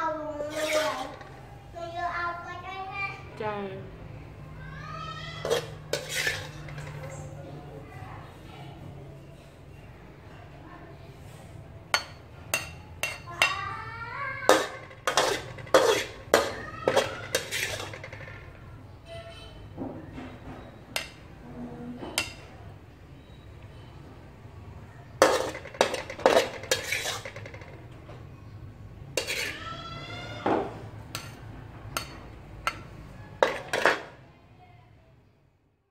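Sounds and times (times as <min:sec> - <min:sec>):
metal spatula scraping wok: 0:00.3 - 0:01.5, 0:05.4 - 0:07.4, 0:14.5 - 0:18.6, 0:25.2 - 0:27.9, 0:29.0 - 0:30.4, 0:31.0 - 0:34.2.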